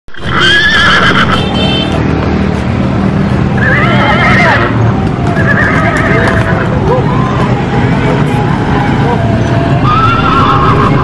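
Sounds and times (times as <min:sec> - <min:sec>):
horse whinnying: 0:00.1 - 0:01.4, 0:03.6 - 0:06.7, 0:09.8 - 0:11.0.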